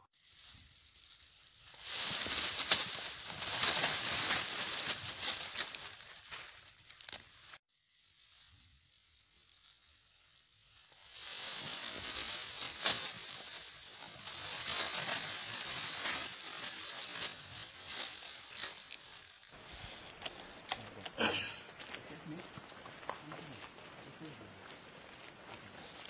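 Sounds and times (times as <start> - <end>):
dry leaves rustling and crackling: 0.1 - 26.0.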